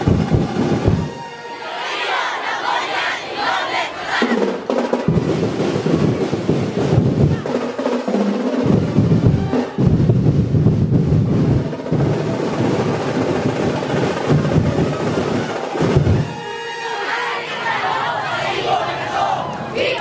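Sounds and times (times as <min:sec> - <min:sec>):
percussion ensemble drumming: 0:00.0 - 0:01.3, 0:04.1 - 0:16.5.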